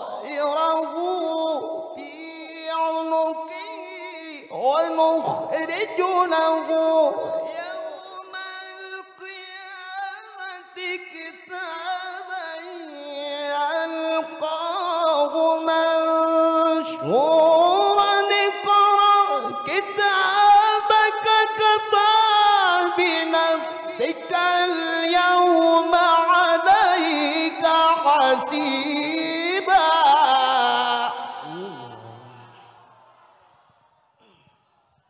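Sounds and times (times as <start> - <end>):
man reciting melodic chant: 0.0 - 32.8.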